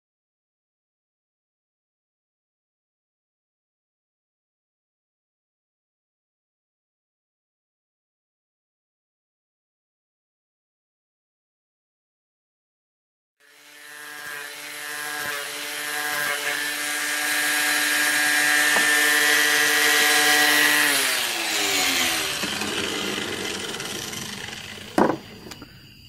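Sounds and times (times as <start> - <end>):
angle grinder grinding metal pipe: 13.4 - 25.7.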